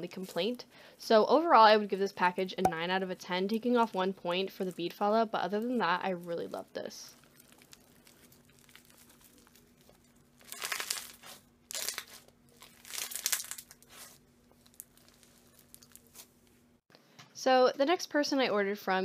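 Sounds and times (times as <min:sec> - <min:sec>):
crunchy slime crackling: 0:03.1 - 0:16.6.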